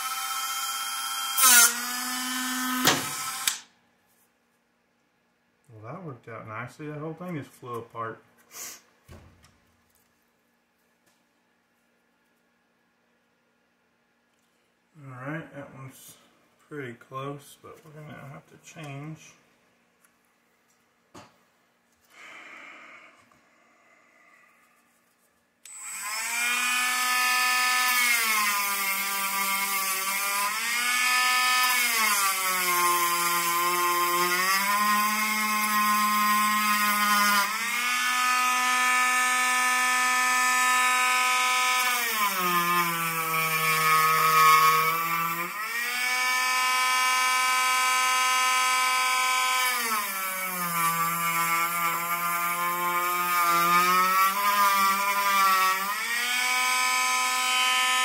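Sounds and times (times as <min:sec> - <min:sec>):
rotary tool grinding: 0:25.7 - 0:58.0.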